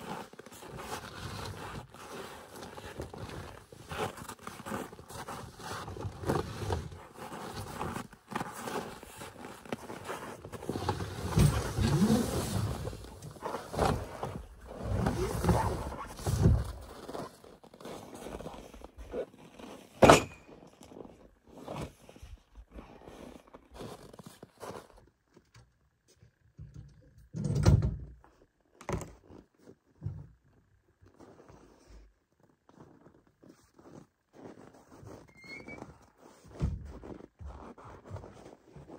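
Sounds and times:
bag dragged in snow: 0.0 - 18.7.

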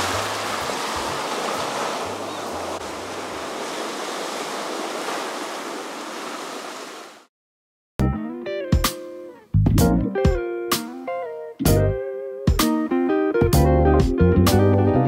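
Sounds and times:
surf washing up a sandy beach: 0.0 - 7.3
guitar music: 8.0 - 15.0.

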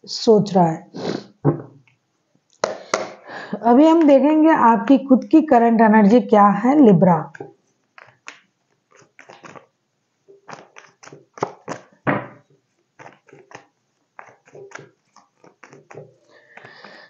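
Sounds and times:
cards being shuffled: 7.3 - 9.7, 10.4 - 17.0.

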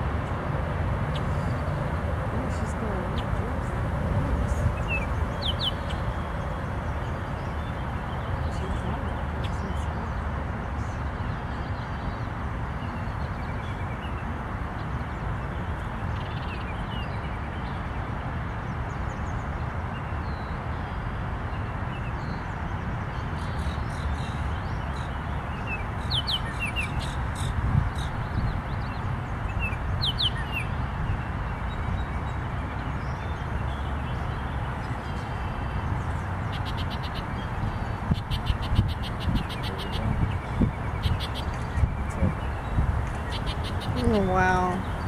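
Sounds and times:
outdoor background noise: 0.0 - 45.0.

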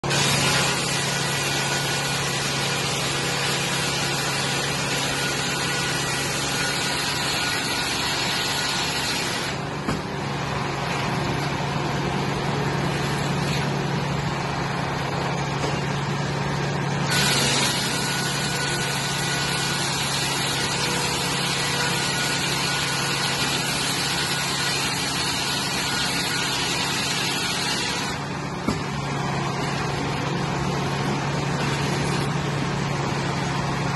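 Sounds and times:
circular saw cutting wood: 0.0 - 11.4, 16.9 - 32.4.

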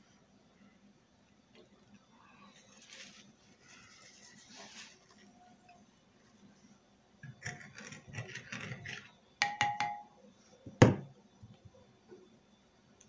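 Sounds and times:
knock on table: 9.4 - 10.0, 10.7 - 11.1
spoon clinking on ceramic dishes: 9.4 - 10.1.

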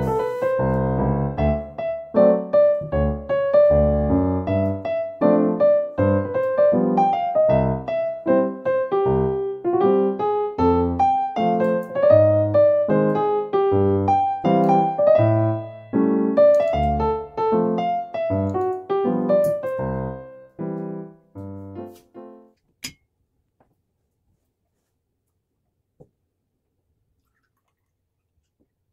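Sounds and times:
piano music: 0.0 - 22.6.

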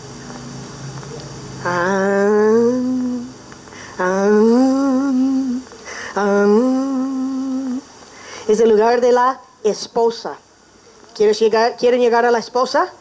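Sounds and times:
person humming long notes: 1.6 - 7.9.

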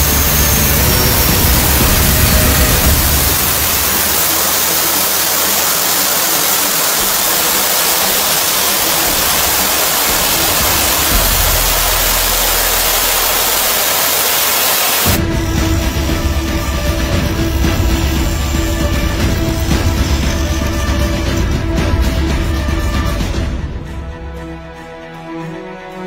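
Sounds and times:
low rumble: 0.0 - 5.1
pressurized jet hissing: 0.0 - 21.2.

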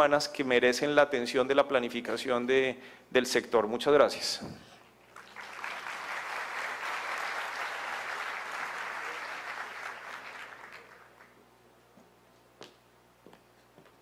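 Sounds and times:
audience applauding: 5.1 - 11.4.

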